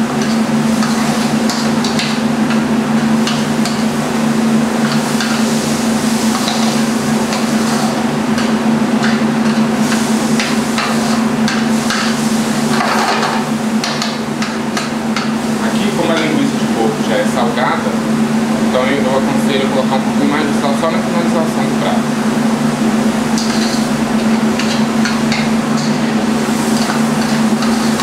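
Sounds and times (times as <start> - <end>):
metal spoon scraping a pan: 0.2 - 2.6, 23.4 - 28.0.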